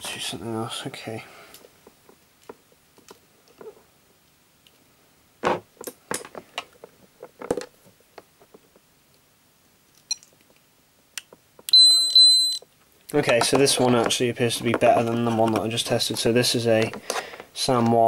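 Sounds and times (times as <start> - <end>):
high meter beeps: 11.7 - 12.6
clicks and knocks handling probes: 13.0 - 18.0.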